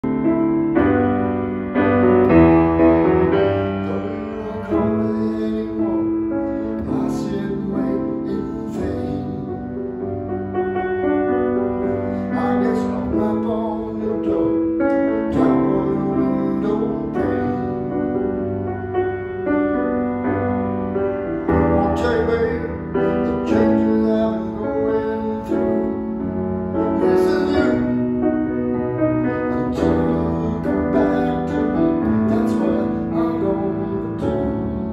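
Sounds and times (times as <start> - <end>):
grand piano chords: 0.0 - 34.9.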